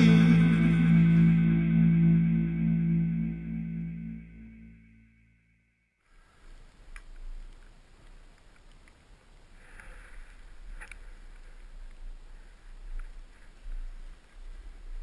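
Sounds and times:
low microphone rumble: 0.0s - 5.6s
skis sliding over snow: 6.1s - 15.0s.

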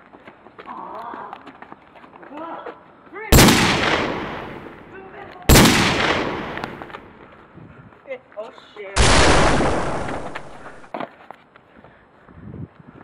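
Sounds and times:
gunshots: 3.3s - 4.9s, 5.5s - 7.1s, 9.0s - 10.9s.

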